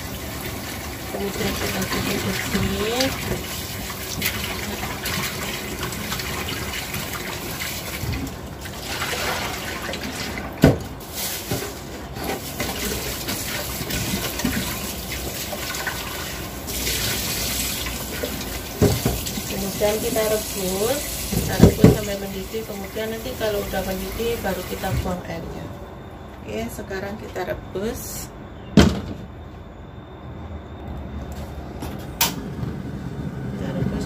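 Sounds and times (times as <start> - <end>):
tap water running: 0.0 - 25.2.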